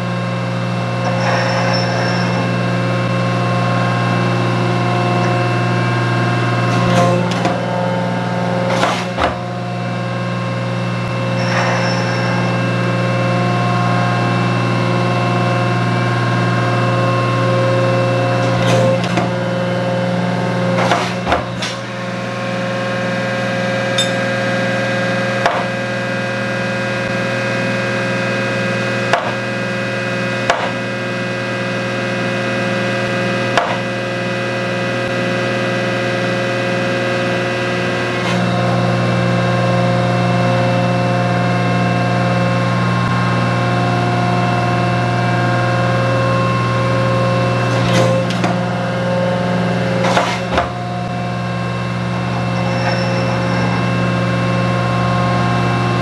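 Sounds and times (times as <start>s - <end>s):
metal planer humming: 0.0s - 56.0s
planer clacks: 50.0s - 50.8s.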